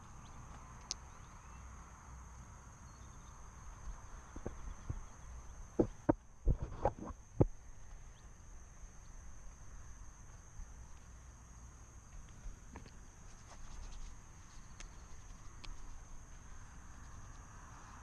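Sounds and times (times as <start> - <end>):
insect chorus trilling: 0.0 - 18.0
faint clicks: 0.5 - 1.1, 12.1 - 17.5.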